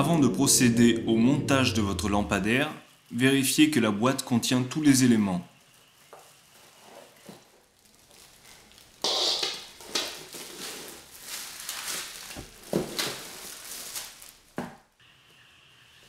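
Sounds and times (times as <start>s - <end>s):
plastic wrapping crinkling: 5.6s - 15.0s.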